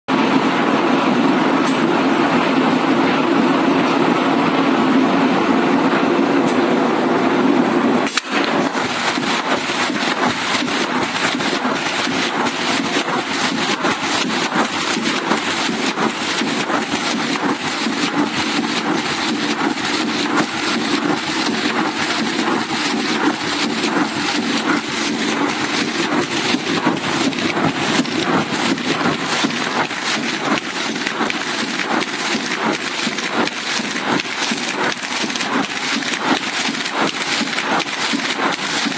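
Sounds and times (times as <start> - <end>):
machine hum: 0.1 - 38.9
fast clatter of rollers: 8.0 - 38.9.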